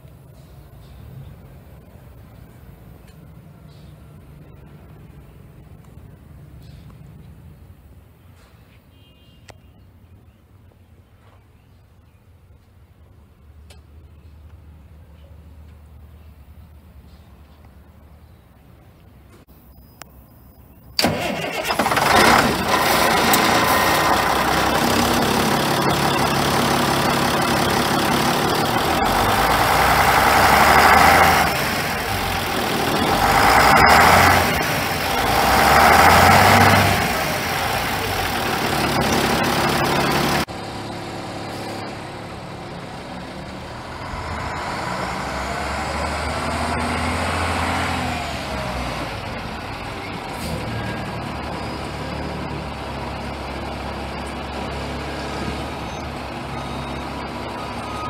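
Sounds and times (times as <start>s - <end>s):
diesel engine starting and idling: 20.9s - 58.0s
engine revving: 21.0s - 58.0s
truck driving past: 21.0s - 58.0s.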